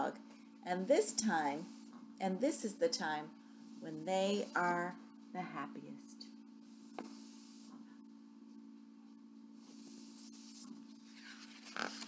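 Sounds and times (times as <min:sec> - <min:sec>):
steady low hum: 0:00.0 - 0:12.0
paper pages rustling: 0:10.6 - 0:12.0.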